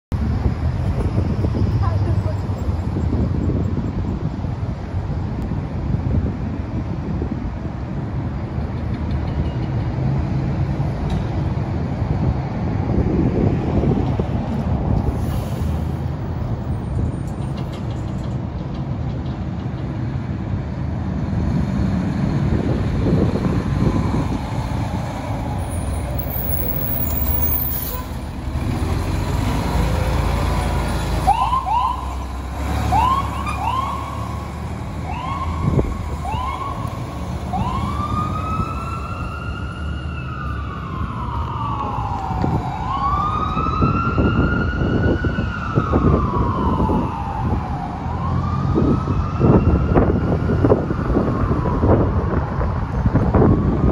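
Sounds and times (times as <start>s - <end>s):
fire engine running: 0.1s - 53.9s
wailing siren: 31.2s - 53.9s.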